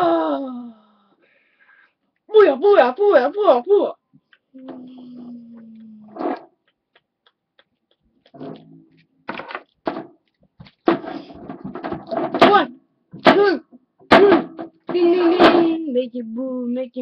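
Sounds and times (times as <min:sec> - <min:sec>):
person grunting and exclaiming: 0:00.0 - 0:00.9, 0:12.4 - 0:15.8
plastic figures knocking: 0:07.6 - 0:15.8.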